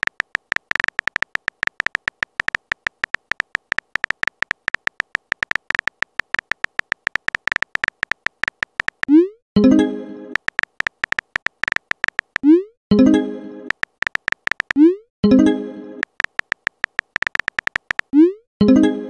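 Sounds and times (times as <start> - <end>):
phone keyboard typing clicks: 0.0 - 9.2, 10.4 - 12.5, 13.7 - 14.8, 16.0 - 18.1.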